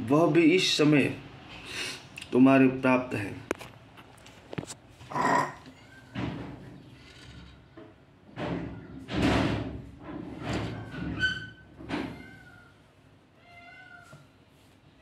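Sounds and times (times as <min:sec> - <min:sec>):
cat meowing faintly: 0:12.1 - 0:12.8, 0:13.4 - 0:14.3.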